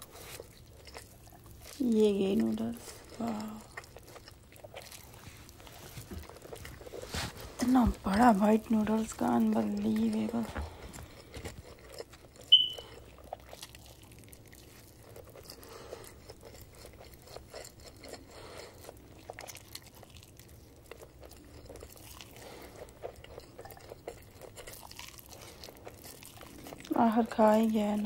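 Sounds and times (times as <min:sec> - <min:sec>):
man chewing and slurping noodles: 0:00.0 - 0:07.7, 0:09.6 - 0:27.0
high-pitched squeak: 0:12.5 - 0:12.9.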